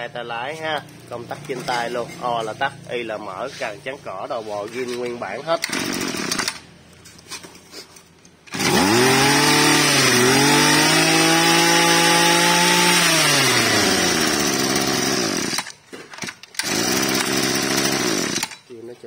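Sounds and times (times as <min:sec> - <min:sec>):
brush cutter engine revving: 0:04.3 - 0:06.7, 0:08.5 - 0:18.8.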